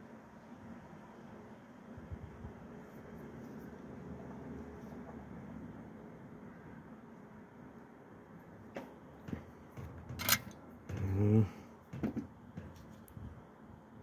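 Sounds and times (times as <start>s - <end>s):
clicks and knocks on metal stand: 9.2s - 11.1s, 11.9s - 13.0s
man humming: 10.9s - 11.6s.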